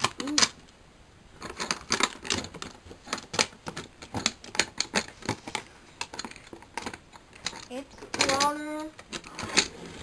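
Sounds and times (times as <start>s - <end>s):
plastic toy bricks clicking: 0.0s - 0.7s, 1.4s - 9.7s.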